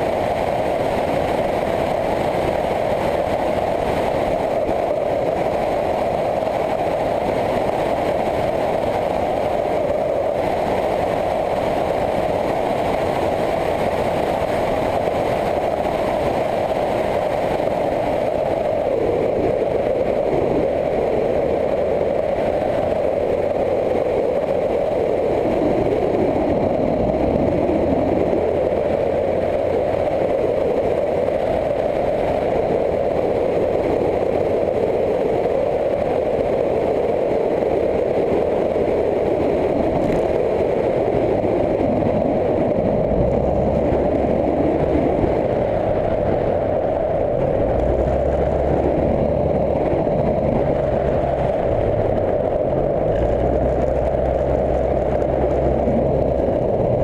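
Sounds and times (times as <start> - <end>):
wind rushing: 0.0 - 57.0
motorcycle engine cruising: 37.9 - 57.0.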